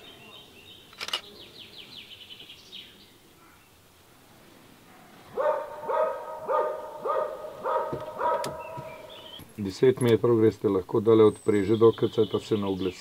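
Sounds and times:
dog barking: 0:04.9 - 0:09.2.

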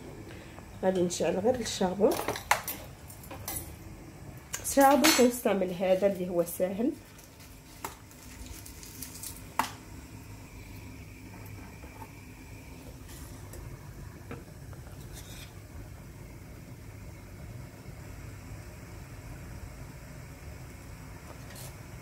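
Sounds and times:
gas burner hissing: 0:00.0 - 0:08.1, 0:09.3 - 0:22.0.

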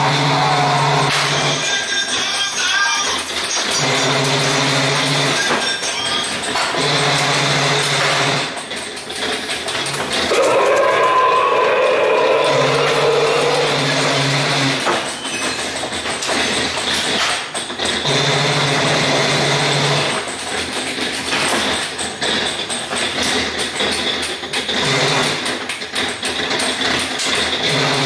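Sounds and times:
low motor hum: 0:00.0 - 0:01.6, 0:10.1 - 0:14.8
ride car rattling on track: 0:00.0 - 0:28.0.

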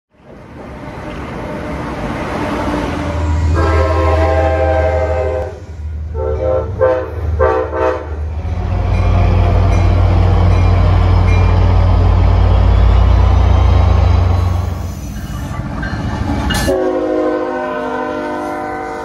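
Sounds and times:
locomotive rumbling past: 0:00.1 - 0:19.0
train horn blasts: 0:03.4 - 0:08.3, 0:16.6 - 0:19.0.

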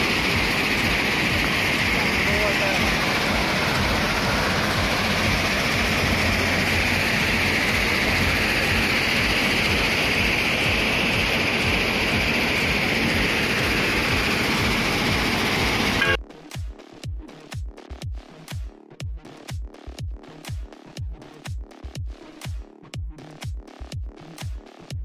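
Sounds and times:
rock crushing machinery roar: 0:00.0 - 0:16.2.

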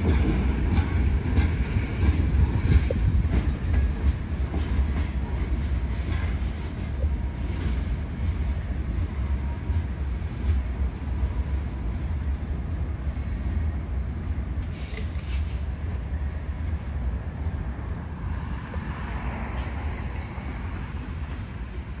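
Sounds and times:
wind buffeting microphone: 0:00.0 - 0:14.6
freight train rumbling: 0:00.0 - 0:22.0.

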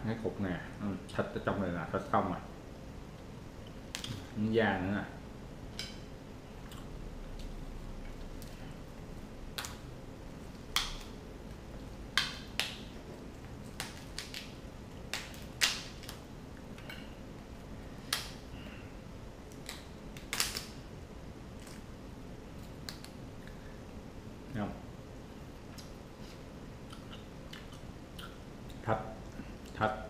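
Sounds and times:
crab shell cracking and crunching: 0:09.5 - 0:09.9, 0:12.1 - 0:17.4, 0:18.0 - 0:18.5, 0:19.4 - 0:20.8, 0:21.5 - 0:21.9.

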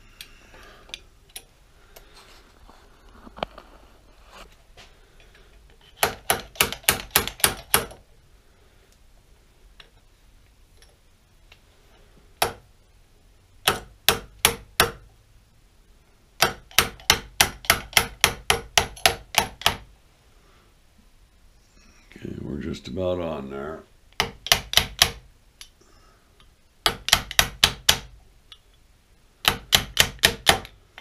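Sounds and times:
hammer tapping metal: 0:13.6 - 0:15.0.

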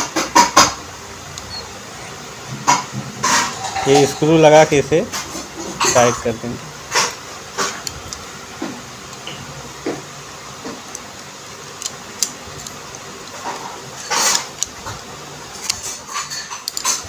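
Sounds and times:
metal scraping: 0:01.3 - 0:07.9
small metal clicks: 0:06.9 - 0:08.3, 0:09.1 - 0:09.5, 0:10.7 - 0:15.0, 0:15.6 - 0:17.0.

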